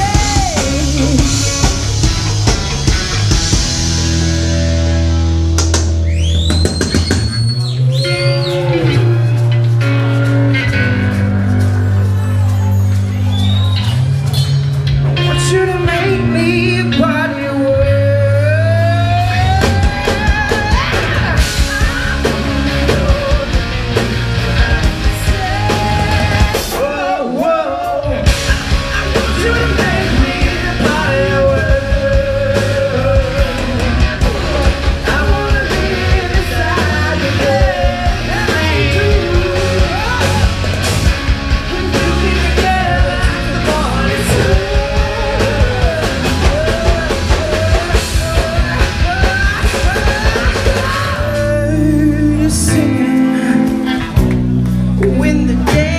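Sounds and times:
person singing: 0.0s - 2.0s, 15.2s - 40.8s, 41.6s - 55.9s
live blues-rock band: 0.0s - 55.9s.

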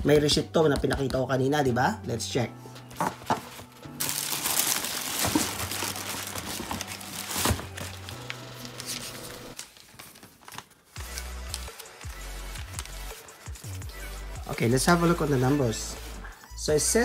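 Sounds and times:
tissue paper crinkling and rustling: 3.2s - 11.8s.

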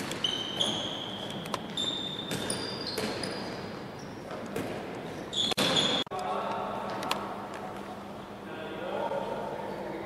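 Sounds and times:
sneakers squeaking: 0.0s - 6.1s.

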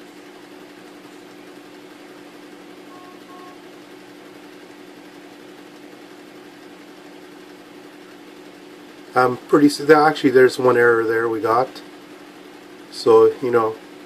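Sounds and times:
low electronic hum: 0.0s - 14.0s
short faint beeps: 2.9s - 3.6s.

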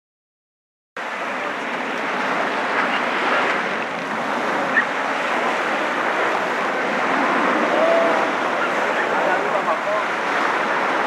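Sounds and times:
surf rushing: 1.0s - 11.0s
wind: 1.0s - 11.0s.

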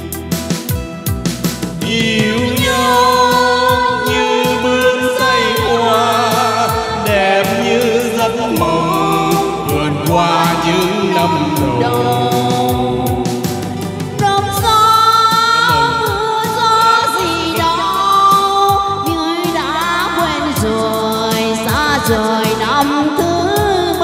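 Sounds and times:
steady beat: 0.0s - 18.2s
wavering lead melody: 0.0s - 18.2s.

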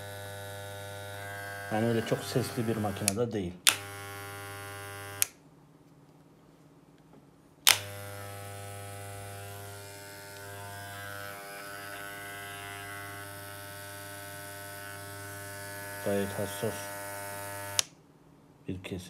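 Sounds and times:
hair clipper buzzing: 0.0s - 5.4s, 7.7s - 17.9s
hair clipper switch click: 2.6s - 5.4s, 7.7s - 8.4s, 10.3s - 10.6s.

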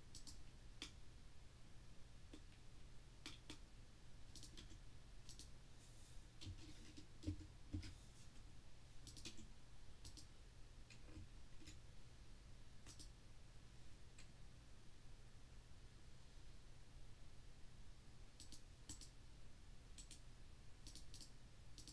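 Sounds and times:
low steady hum: 0.0s - 21.9s
computer mouse clicks: 0.1s - 1.0s, 3.2s - 3.6s, 4.3s - 5.5s, 9.0s - 10.3s, 12.8s - 13.2s, 18.4s - 19.2s, 20.0s - 20.2s, 20.8s - 21.9s.

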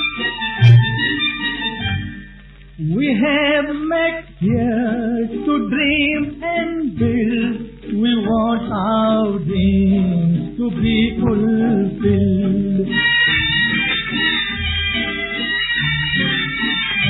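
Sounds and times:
orchestral accompaniment: 0.0s - 2.4s
man singing with vibrato: 2.8s - 13.6s.

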